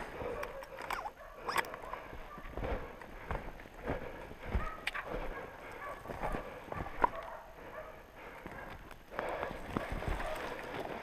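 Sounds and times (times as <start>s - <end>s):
footsteps crunching in snow: 2.0s - 7.2s, 8.4s - 11.0s.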